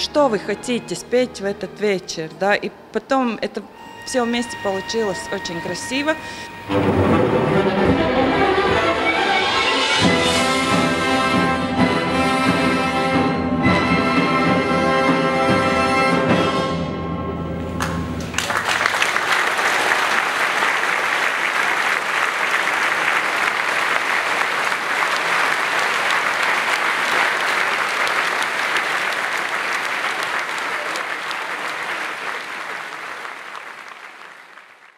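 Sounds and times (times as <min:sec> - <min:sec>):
orchestra playing sustained notes: 0:00.0 - 0:18.2
audience applause: 0:17.8 - 0:34.9.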